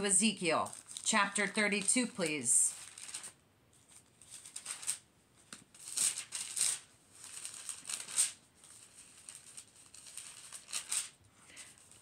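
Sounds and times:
thin pages being flipped: 2.7 - 12.0.

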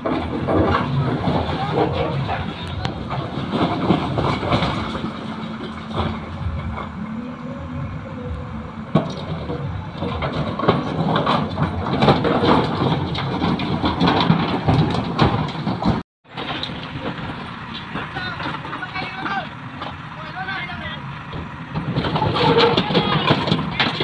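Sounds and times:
diesel engine humming: 0.0 - 24.0
uneven clattering knocks: 8.9 - 20.1, 21.2 - 24.0.

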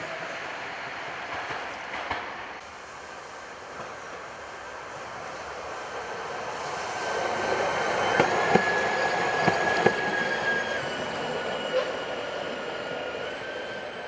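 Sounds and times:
tram rolling noise: 0.0 - 14.0
wheels clacking on track: 7.4 - 10.2.

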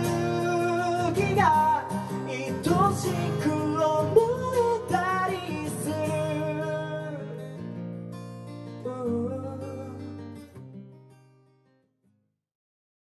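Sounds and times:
acoustic guitar strumming: 0.0 - 11.7.

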